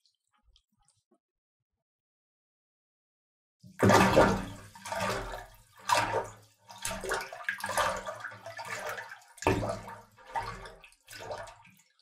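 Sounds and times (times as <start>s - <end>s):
water splashing: 3.8s - 12.0s.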